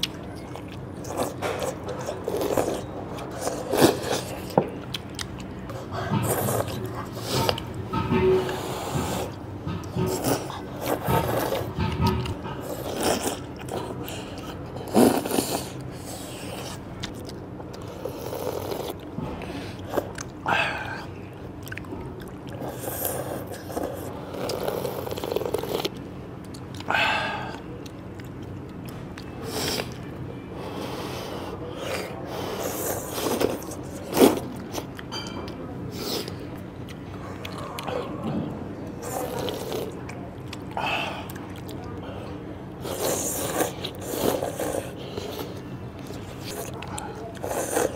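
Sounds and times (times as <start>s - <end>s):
people slurping noodles: 1.0s - 4.6s, 12.6s - 16.8s, 17.8s - 21.2s, 22.5s - 25.9s, 30.6s - 34.9s, 38.9s - 40.0s, 40.8s - 47.9s.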